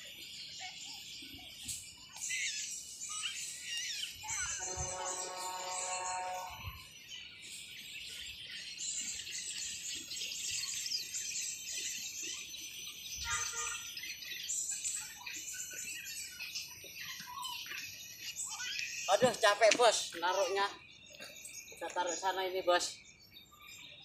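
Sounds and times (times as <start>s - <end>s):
small birds chirping: 0.0s - 24.0s
low bird call: 2.2s - 6.8s.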